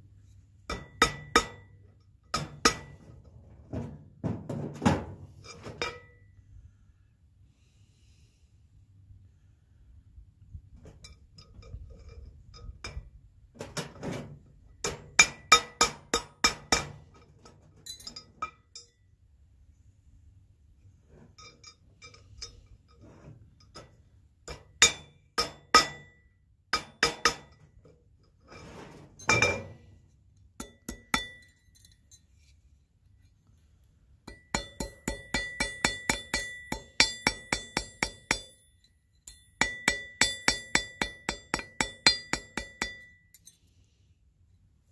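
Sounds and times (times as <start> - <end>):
hammer ringing on metal: 24.8 - 26.2, 30.6 - 31.5, 34.3 - 43.2.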